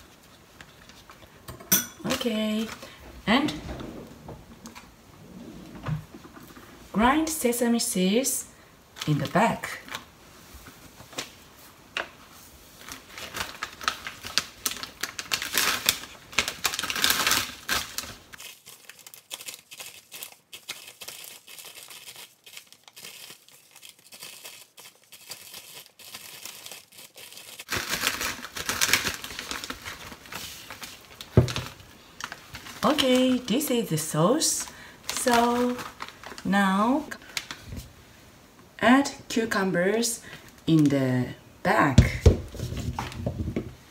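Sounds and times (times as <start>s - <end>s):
plastic bag crinkling: 12.8s - 37.9s.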